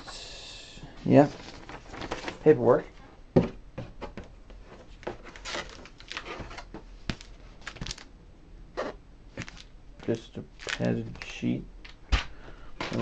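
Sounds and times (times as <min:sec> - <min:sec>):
paper rustling: 0:01.2 - 0:02.5, 0:04.6 - 0:08.1, 0:12.1 - 0:13.0.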